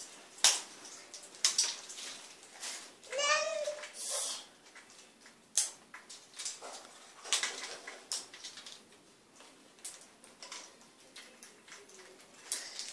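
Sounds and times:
parrots cracking nuts: 4.6s - 12.9s.

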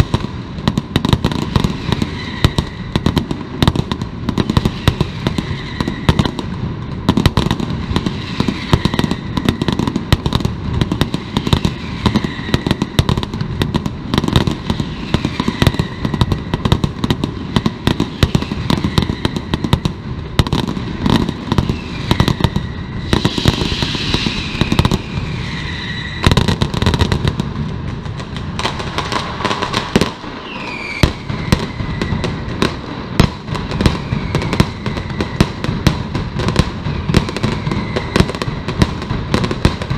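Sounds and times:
firecrackers banging: 0.0s - 39.9s
high falling whistle: 1.4s - 3.1s, 4.4s - 6.3s, 11.2s - 13.0s, 14.6s - 16.5s, 21.0s - 26.6s, 30.3s - 32.5s, 33.7s - 35.8s, 37.0s - 38.7s.

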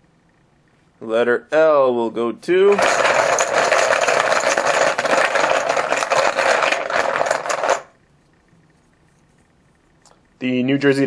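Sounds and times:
poker chips rattling and clacking: 2.7s - 7.9s.

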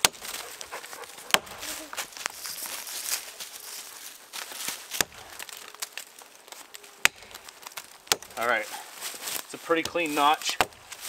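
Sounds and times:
axe chopping wood: 0.0s - 0.4s, 1.2s - 1.7s, 4.8s - 5.6s, 7.0s - 8.4s, 9.8s - 11.0s.

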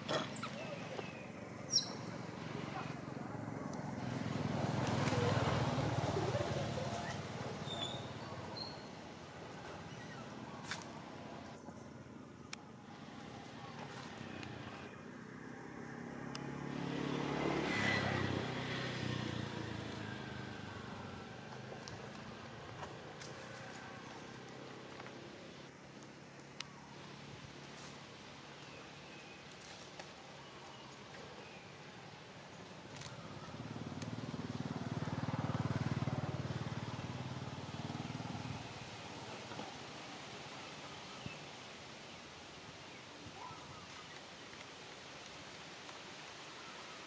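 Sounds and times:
vehicle engine passing by: 1.8s - 8.9s, 13.8s - 25.4s, 32.9s - 39.8s.

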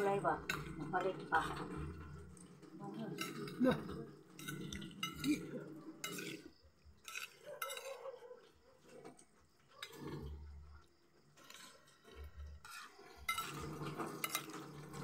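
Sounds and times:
cutlery clinking on glass bowl: 3.1s - 8.1s, 11.4s - 15.0s.

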